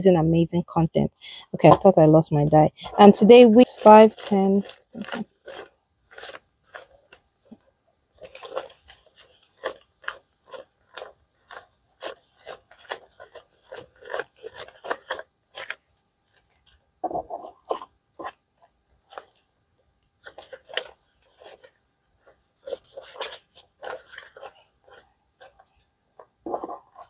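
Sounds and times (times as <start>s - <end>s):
paper bills rustling: 2.8s - 7.6s, 8.2s - 16.8s, 20.2s - 25.8s.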